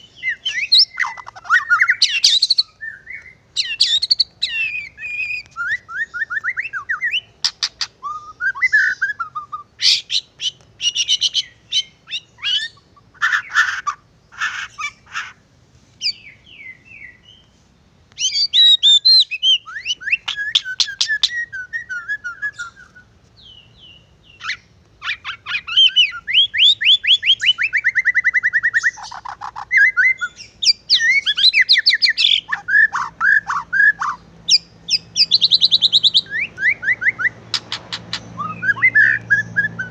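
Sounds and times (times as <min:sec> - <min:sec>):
bird song with whistles and trills: 0:00.0 - 0:15.4, 0:16.0 - 0:17.6, 0:18.2 - 0:39.9.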